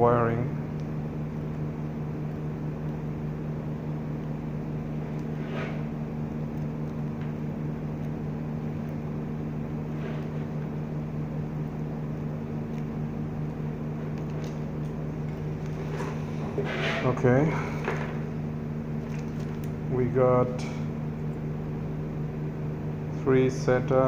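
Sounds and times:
machine humming: 0.0s - 24.0s
cables rustling: 14.0s - 18.3s, 18.9s - 19.8s.

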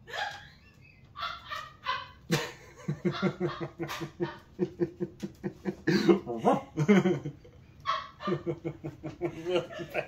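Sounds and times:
dog barking: 1.2s - 2.2s, 3.0s - 4.5s, 7.8s - 8.6s.

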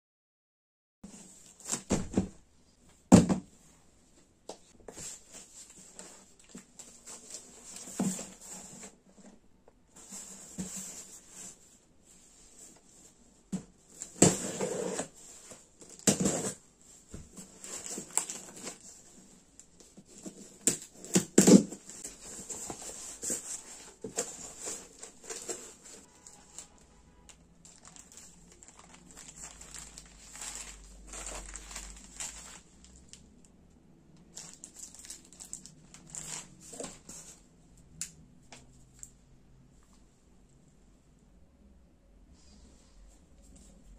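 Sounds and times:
plastic rustling: 13.8s - 33.3s, 34.3s - 37.4s.

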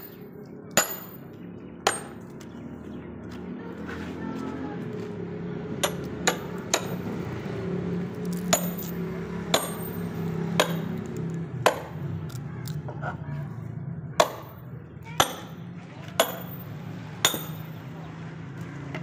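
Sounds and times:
sledgehammer striking metal wedge: 0.8s - 1.2s, 1.9s - 2.3s, 5.8s - 7.2s, 8.4s - 11.0s, 11.6s - 12.0s, 14.2s - 14.6s, 15.2s - 16.6s, 17.2s - 17.7s.

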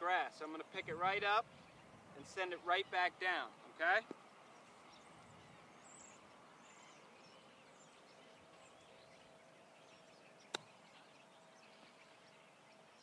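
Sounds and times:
faint bird chirps: 4.2s - 13.0s
golf club hitting ball in grass: 10.5s - 10.8s.

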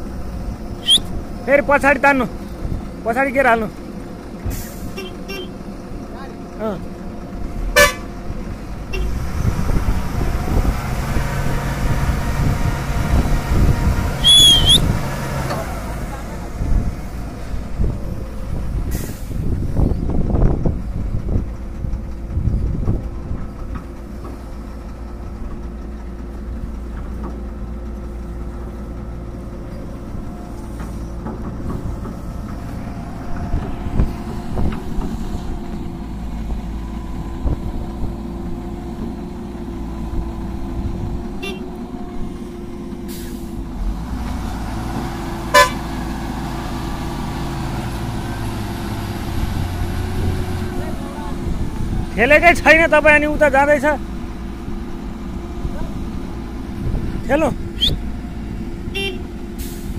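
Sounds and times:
heavy diesel engines running: 0.0s - 59.9s
brief high squeal: 0.8s - 1.1s, 14.2s - 14.9s.

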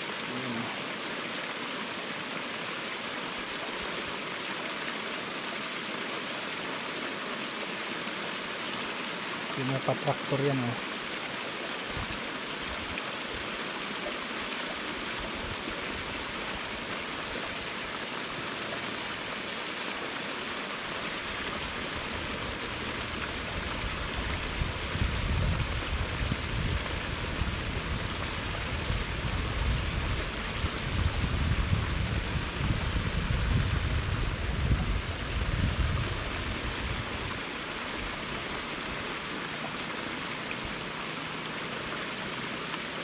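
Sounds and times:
water rushing: 0.0s - 43.0s
wind rumble on microphone: 22.0s - 37.4s.

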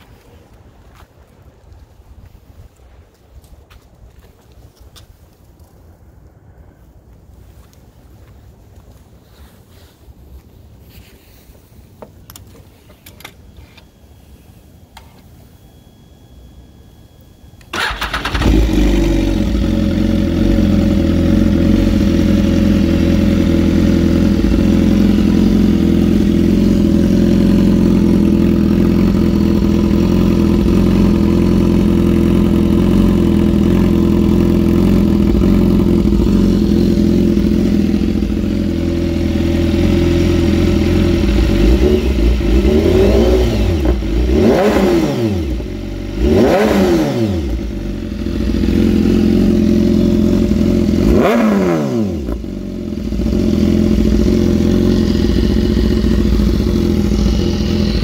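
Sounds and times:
motorcycle throttle blips: 17.2s - 58.0s
motorcycle engine starting and idling: 17.6s - 58.0s.

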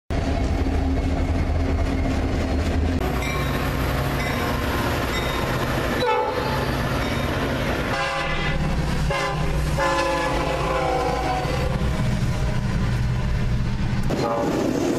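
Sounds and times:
diesel locomotives rumbling: 0.1s - 14.9s
train cars rolling on rails: 0.1s - 14.9s
multi-chime locomotive horn: 3.0s - 11.8s.

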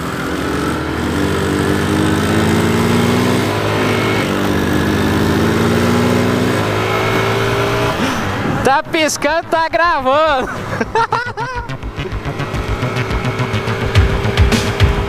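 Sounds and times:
motorcycle engine accelerating: 0.0s - 8.6s, 10.3s - 15.0s.

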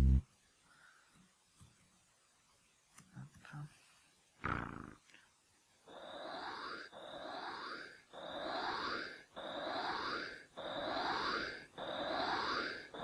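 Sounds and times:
rushing hissing noise with rising sweep: 5.9s - 13.0s.

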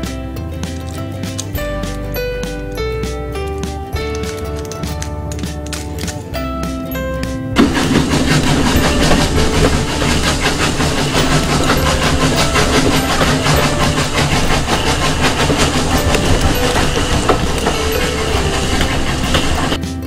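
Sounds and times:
locomotive running rhythmically: 0.0s - 20.0s.

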